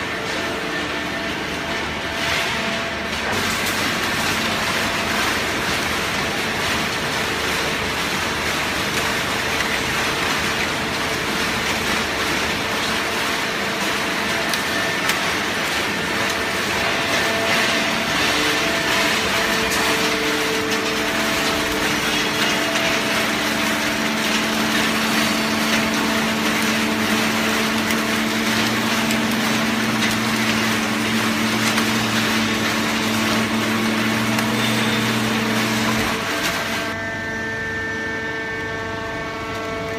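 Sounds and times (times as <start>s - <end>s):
hydraulic baler running: 0.0s - 39.9s
low machine hum: 0.0s - 39.9s.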